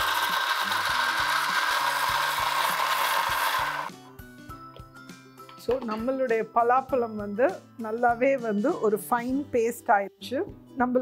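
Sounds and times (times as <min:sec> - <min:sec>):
mixer grinder running: 0:00.0 - 0:04.0.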